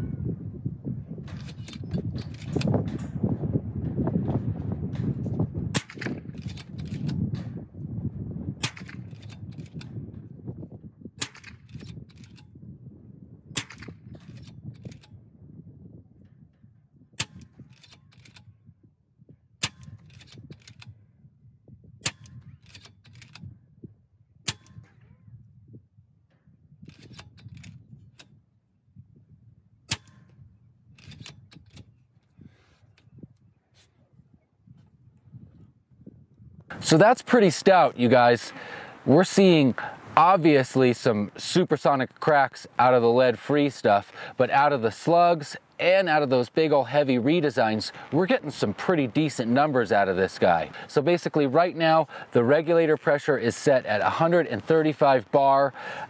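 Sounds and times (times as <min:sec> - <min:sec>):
air rifle shots cracking: 0:05.7 - 0:06.6, 0:08.6 - 0:09.3, 0:11.2 - 0:11.9, 0:13.5 - 0:14.3
handling clicks: 0:17.2 - 0:18.5, 0:22.1 - 0:23.5, 0:31.0 - 0:32.4.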